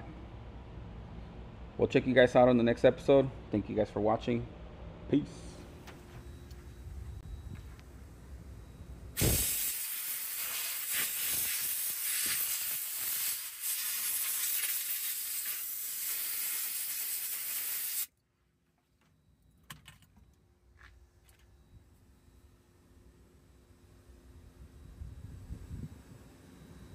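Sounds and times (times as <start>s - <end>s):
compressed air blow gun hissing: 9.2s - 18.1s.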